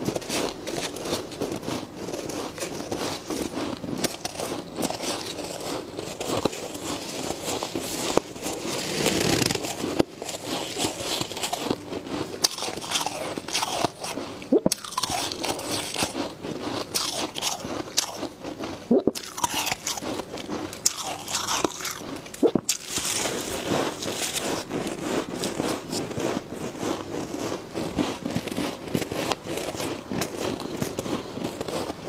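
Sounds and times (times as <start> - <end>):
crunching of powdery frost: 0.0 - 32.0
frost being bitten: 18.9 - 26.1.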